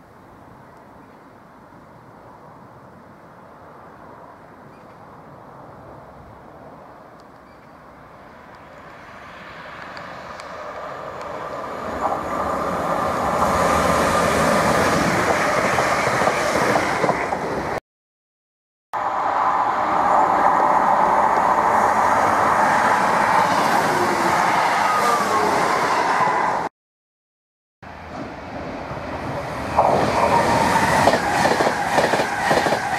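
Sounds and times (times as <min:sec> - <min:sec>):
train passing at speed: 0:07.9 - 0:17.8, 0:19.0 - 0:26.7, 0:27.9 - 0:32.9
electric train approaching: 0:09.0 - 0:17.8, 0:19.0 - 0:26.7, 0:27.9 - 0:32.9.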